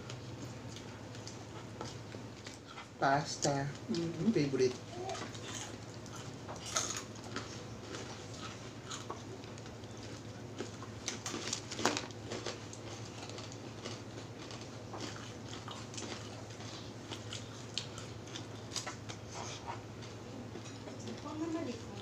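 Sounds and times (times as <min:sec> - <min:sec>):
chewing: 0:00.0 - 0:21.3
steady low hum: 0:00.0 - 0:22.0
aluminium foil crinkling: 0:09.4 - 0:14.8.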